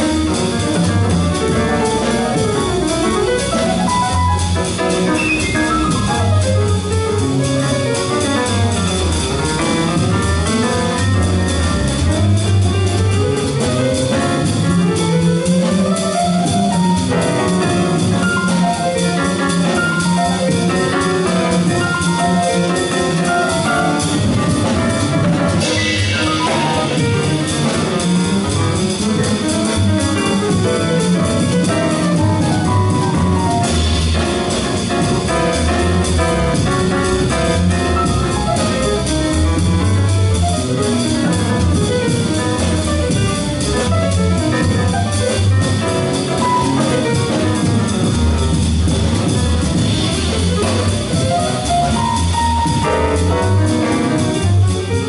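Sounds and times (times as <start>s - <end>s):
drum kit cymbals: 0.0s - 55.0s
piano: 0.0s - 55.0s
upright bass line: 0.0s - 55.0s.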